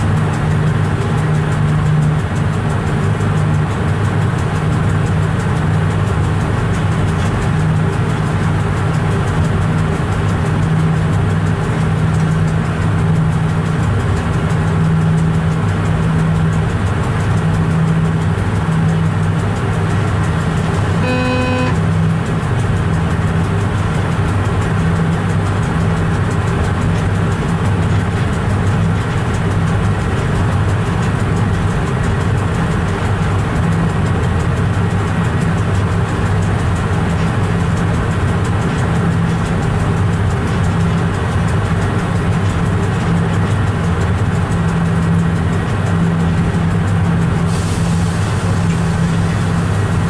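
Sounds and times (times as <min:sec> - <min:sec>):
train cab hum: 0:00.0 - 0:50.0
train horn toot: 0:20.9 - 0:22.0.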